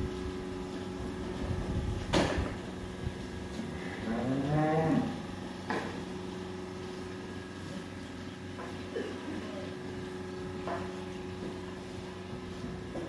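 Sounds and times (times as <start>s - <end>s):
steady hum: 0.0s - 13.0s
cow mooing: 3.7s - 5.3s.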